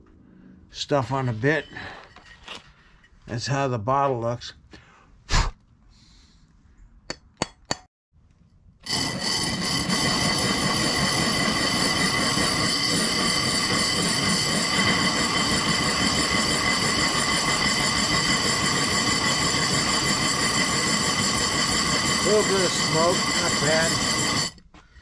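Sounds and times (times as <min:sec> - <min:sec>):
drill motor whine: 0:08.8 - 0:24.6
drill bit grinding glass: 0:08.8 - 0:24.7.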